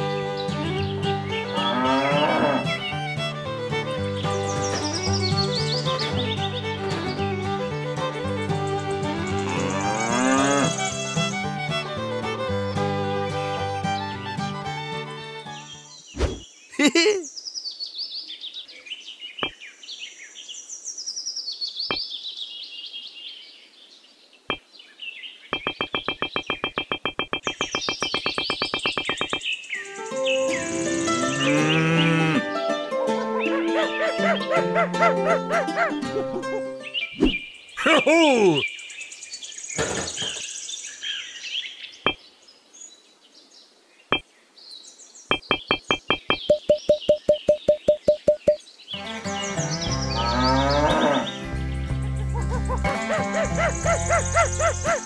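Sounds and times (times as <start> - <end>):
birds chirping and trilling: 0.0 - 2.9, 4.0 - 7.3, 8.2 - 11.4, 15.4 - 35.8, 36.7 - 55.0
sharp clicks: 25.6 - 29.4, 45.3 - 48.6
background music ticking notes: 25.6 - 29.5, 45.3 - 55.0
sharp ticks: 25.6 - 29.5, 45.3 - 48.6.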